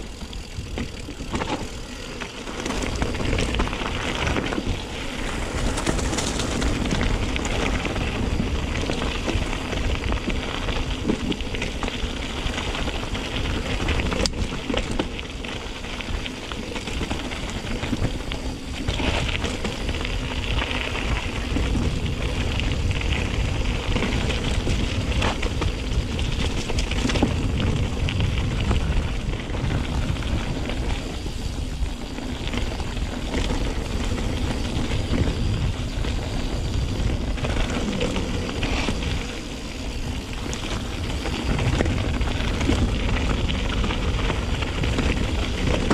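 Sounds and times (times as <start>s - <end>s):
bike knocks and rattles: 0.0s - 15.4s
bike tyres rolling over gravel: 0.0s - 45.9s
wind rumble on microphone: 0.0s - 45.9s.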